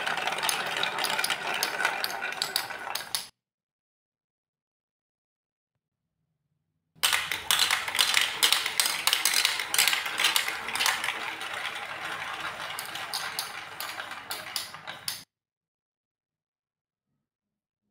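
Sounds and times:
plastic balls rattling down chutes: 0.0 - 3.3, 7.0 - 15.2.

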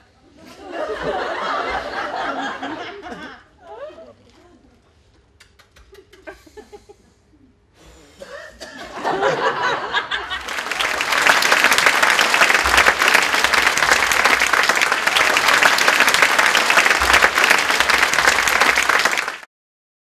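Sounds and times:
audience laughing: 0.4 - 3.5, 8.8 - 19.4
audience applauding: 9.2 - 19.5.

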